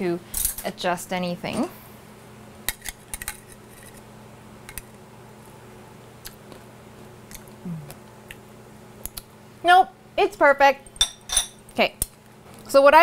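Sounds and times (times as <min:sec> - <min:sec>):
person humming low: 0:07.6 - 0:08.0.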